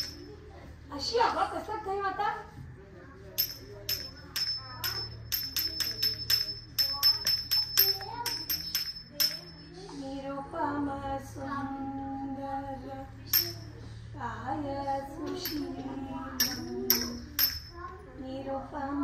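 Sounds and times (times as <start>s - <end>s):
small hand cymbals ringing: 0.0s - 0.4s, 3.4s - 9.9s, 13.3s - 13.9s, 15.4s - 18.0s.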